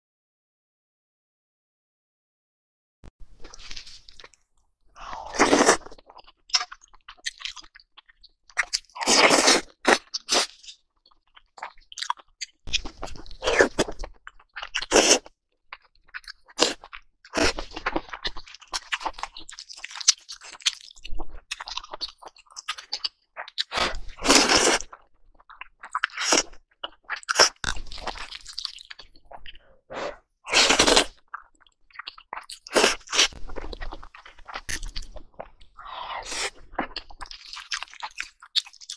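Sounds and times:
slurping noodles and soup: 0:05.0 - 0:06.1, 0:08.9 - 0:10.6, 0:14.8 - 0:15.3, 0:23.6 - 0:25.0, 0:27.2 - 0:31.2, 0:32.4 - 0:38.1
chewing: 0:09.9 - 0:38.9.

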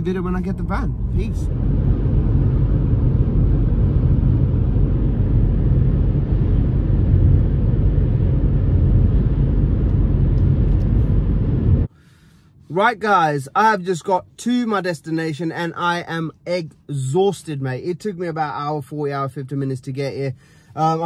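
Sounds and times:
road and engine rumble in car: 0:00.0 - 0:21.0.

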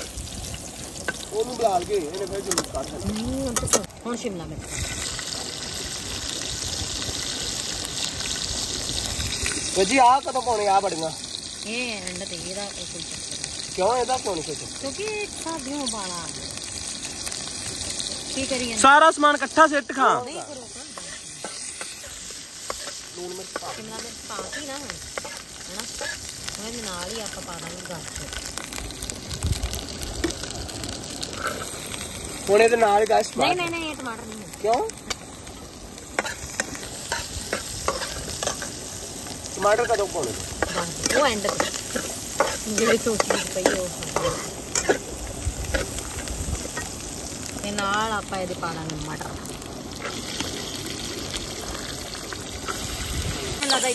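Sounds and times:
vegetables sizzling in oil: 0:00.0 - 0:53.9
metal spoon scraping a pan: 0:20.9 - 0:26.3, 0:36.2 - 0:38.8, 0:39.6 - 0:45.1.

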